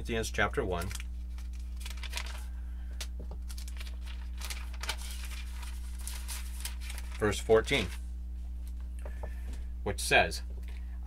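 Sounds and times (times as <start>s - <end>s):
low hum: 0.0s - 11.0s
book pages rustling: 0.8s - 2.4s, 3.3s - 8.0s.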